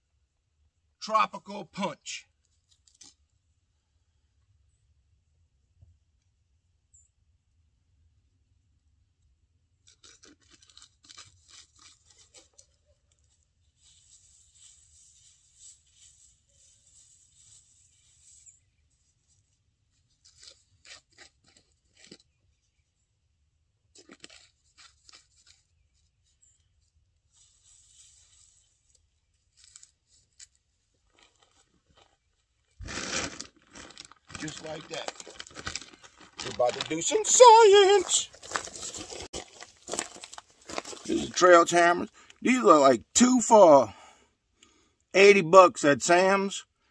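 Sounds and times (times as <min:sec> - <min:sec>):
dry leaves and corn rustling: 0:09.8 - 0:19.4, 0:27.2 - 0:32.2, 0:32.8 - 0:41.4
plastic package crackling open: 0:09.9 - 0:12.7, 0:33.2 - 0:37.2, 0:38.3 - 0:41.1.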